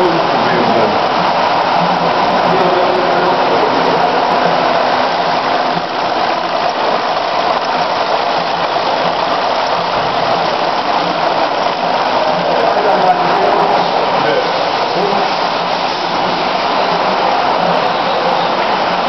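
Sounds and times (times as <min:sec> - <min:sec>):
production line machinery noise: 0:00.0 - 0:19.0.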